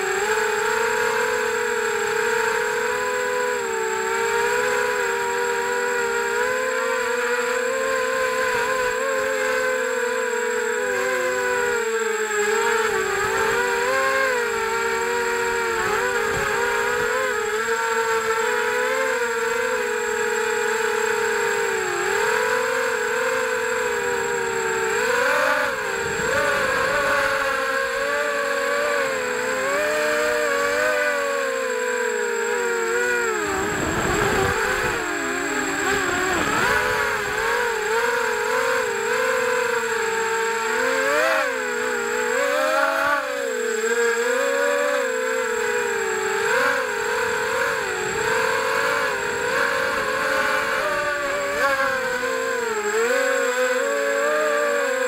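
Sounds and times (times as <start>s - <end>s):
quadcopter motors whining: 0.0s - 55.0s.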